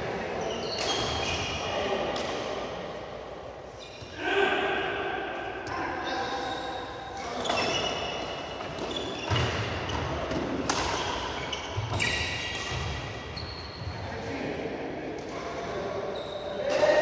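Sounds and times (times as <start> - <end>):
shoes squeaking on court: 0.4 - 1.6, 3.7 - 4.1, 6.4 - 14.0, 16.1 - 16.6
racket hitting shuttlecock: 7.2 - 13.3.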